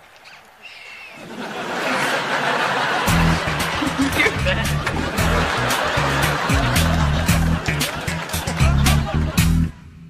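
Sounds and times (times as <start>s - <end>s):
audience laughter: 1.2s - 9.8s.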